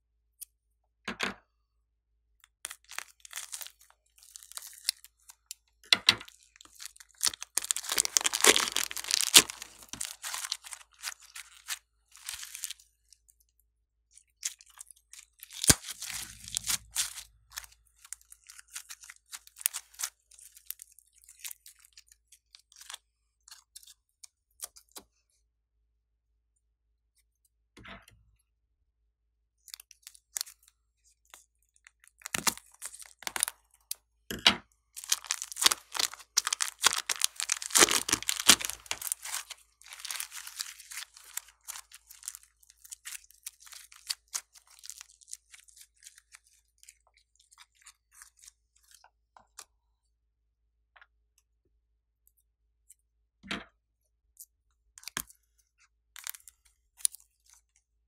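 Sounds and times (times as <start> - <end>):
foam bead slime crunching: 2.7 - 5.6, 6.2 - 13.4, 14.2 - 24.0, 29.7 - 34.0, 35.0 - 49.0, 56.2 - 57.8.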